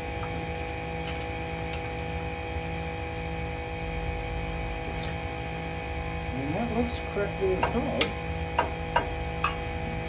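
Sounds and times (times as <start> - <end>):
pressure washer humming: 4.6 - 10.0.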